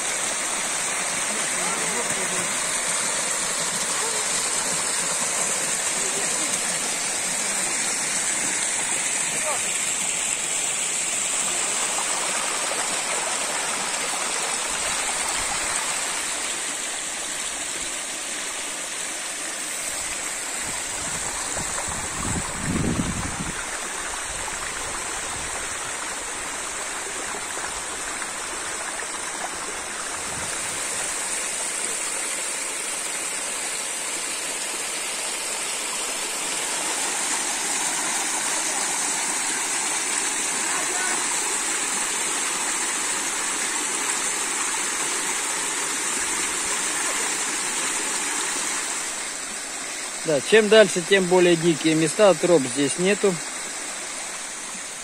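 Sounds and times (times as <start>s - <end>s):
river rushing over rocks: 0.0s - 55.0s.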